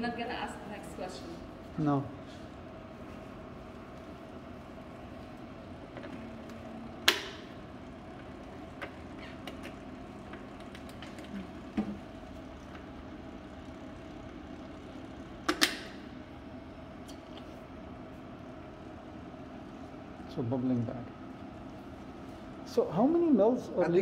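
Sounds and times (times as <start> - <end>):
machine humming: 0.0 - 24.0.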